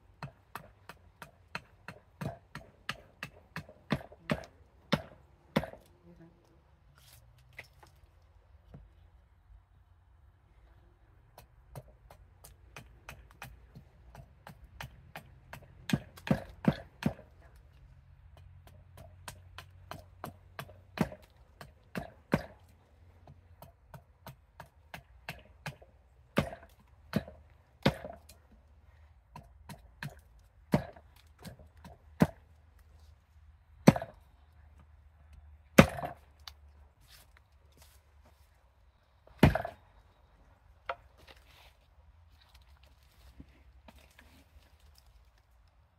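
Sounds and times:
axe chopping wood: 0:00.2 - 0:05.9, 0:11.4 - 0:17.3, 0:18.3 - 0:28.4, 0:29.3 - 0:32.5, 0:33.8 - 0:34.2, 0:35.6 - 0:36.6, 0:39.4 - 0:39.8.

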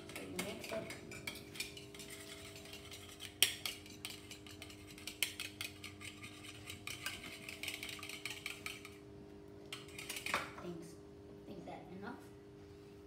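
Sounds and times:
fork beating egg in bowl: 0:00.0 - 0:09.0, 0:09.7 - 0:10.5.

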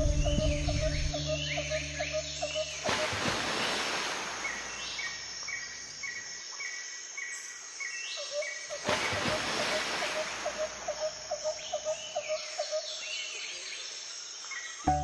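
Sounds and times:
high-pitched chirp: 0:00.0 - 0:02.9
background music: 0:00.0 - 0:03.3
steady outdoor hiss: 0:00.0 - 0:15.0.

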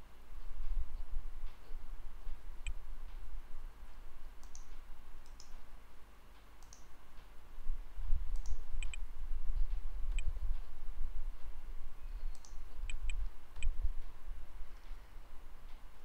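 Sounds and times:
computer mouse clicks: 0:04.4 - 0:05.6, 0:06.6 - 0:07.3, 0:08.3 - 0:09.0, 0:12.3 - 0:13.8.

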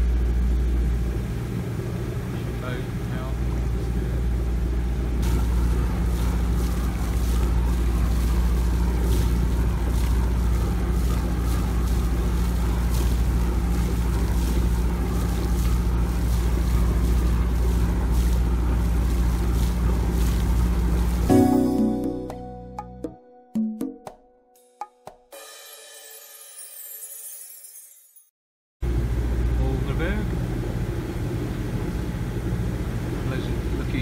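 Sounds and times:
boat engine running: 0:00.0 - 0:22.0
water noise: 0:05.2 - 0:22.9
music: 0:05.2 - 0:27.3.

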